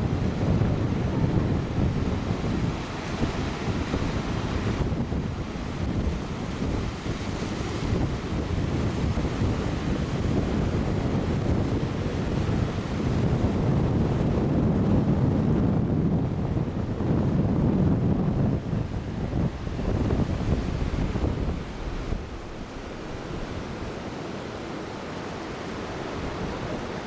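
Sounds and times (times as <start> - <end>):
wind buffeting microphone: 0.0 - 27.0
surf breaking on rocky shore: 18.7 - 27.0.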